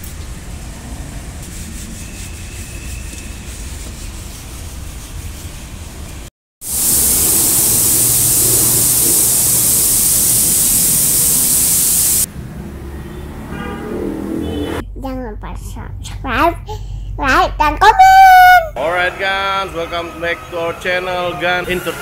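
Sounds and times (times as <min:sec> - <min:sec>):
low rumbling noise: 0:06.6 - 0:12.3
pressurised spray hissing: 0:06.6 - 0:12.3.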